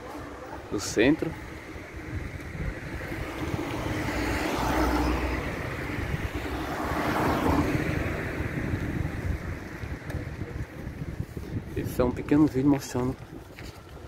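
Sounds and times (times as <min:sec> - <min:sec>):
traffic: 0:00.0 - 0:14.0
wind on microphone: 0:00.0 - 0:14.0.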